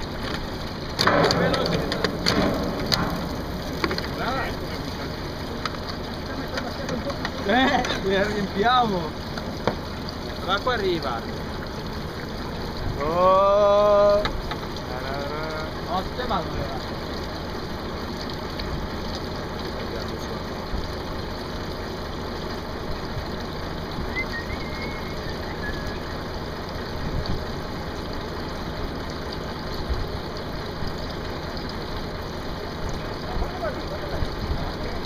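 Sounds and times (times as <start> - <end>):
truck engine idling: 0.0 - 35.0
water pouring down a metal chute: 0.0 - 35.0.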